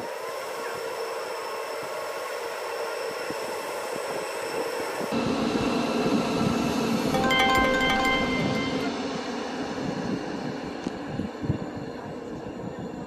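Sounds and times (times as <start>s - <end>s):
music: 7.2s - 9.0s.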